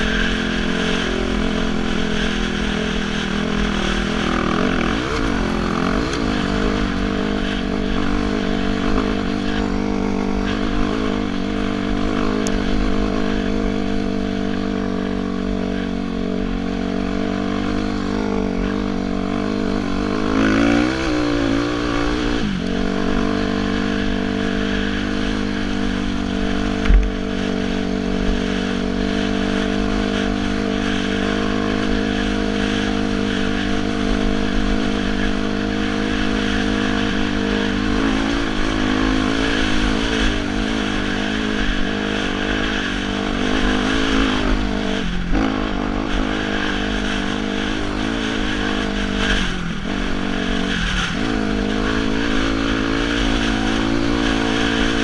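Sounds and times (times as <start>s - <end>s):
dirt bike engine running: 0.0s - 55.0s
short thump: 26.8s - 27.1s.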